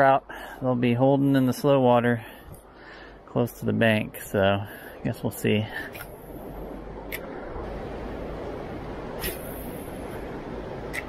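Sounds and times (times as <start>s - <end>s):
sharp click: 7.1s - 7.3s.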